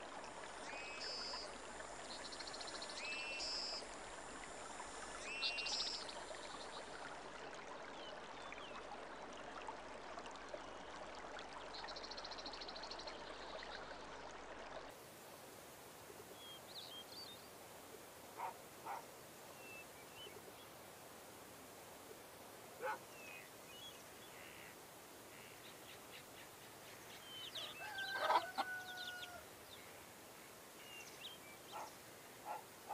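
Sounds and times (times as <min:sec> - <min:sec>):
river water flowing: 0:00.0 - 0:32.9
distant dog barks: 0:18.4 - 0:19.1, 0:22.8 - 0:23.1, 0:31.7 - 0:32.9
birds chirping: 0:18.4 - 0:20.7, 0:22.8 - 0:24.7, 0:30.8 - 0:32.9
rooster crowing: 0:27.6 - 0:29.5.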